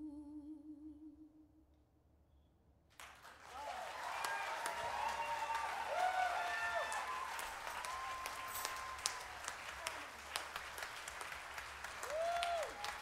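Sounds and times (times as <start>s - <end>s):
audience clapping: 2.9s - 13.0s
person cheering: 3.6s - 10.1s, 12.0s - 13.0s.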